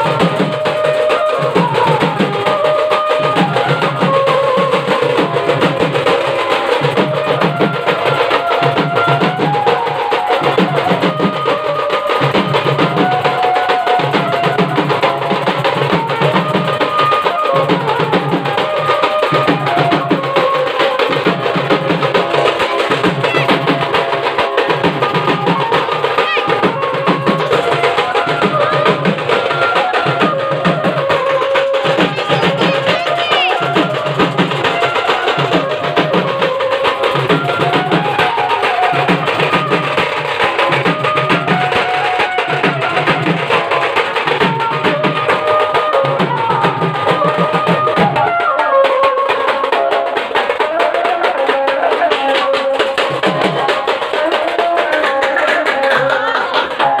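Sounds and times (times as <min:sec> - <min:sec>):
barrel drums beaten fast: 0:00.0 - 0:57.0.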